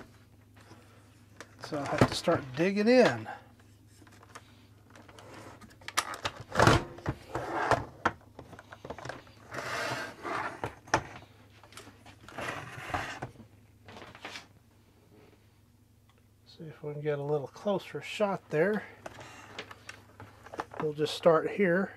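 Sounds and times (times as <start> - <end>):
plastic scraping on plastic: 4.0 - 14.5.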